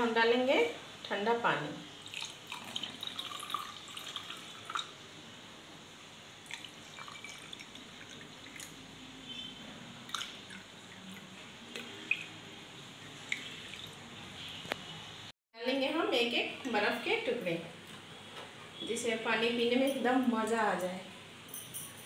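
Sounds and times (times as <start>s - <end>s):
water pouring into glass: 2.0s - 5.0s, 6.4s - 8.8s, 10.1s - 12.4s.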